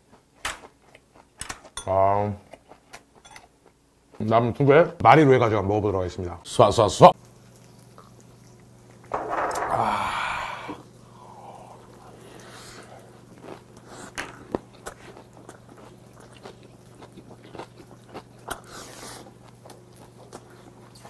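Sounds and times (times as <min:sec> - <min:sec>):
person chewing crunchy food: 0:00.0 - 0:01.8, 0:02.4 - 0:04.2, 0:11.1 - 0:21.0.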